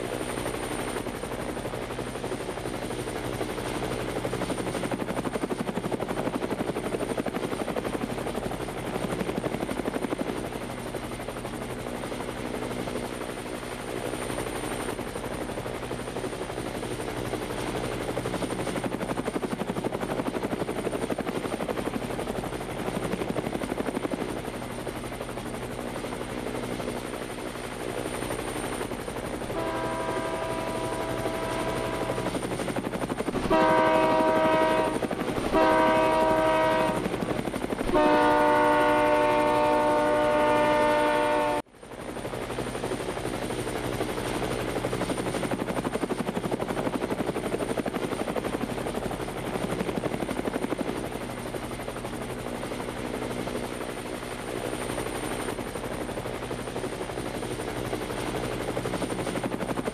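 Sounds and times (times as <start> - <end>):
locomotive air horn blasts: 29.6 - 31.7, 33.4 - 37.0, 37.9 - 41.6.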